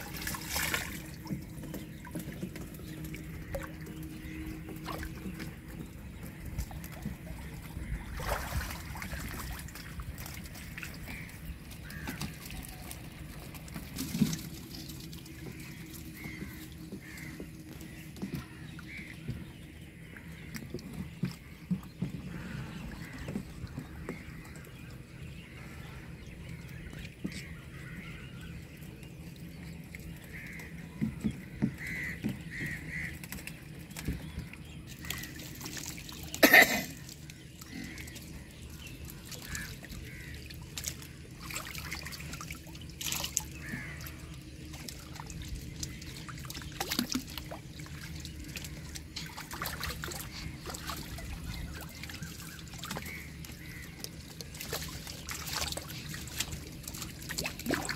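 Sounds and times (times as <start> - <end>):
water sloshing and trickling: 0.0 - 57.9.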